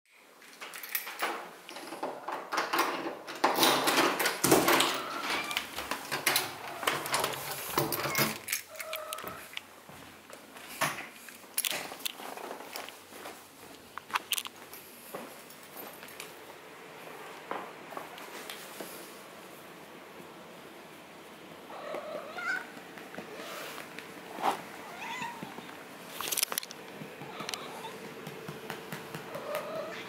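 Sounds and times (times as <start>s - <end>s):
wooden door opening: 0.8s - 9.4s
cat trilling: 21.7s - 22.7s, 24.8s - 25.7s, 27.2s - 28.0s.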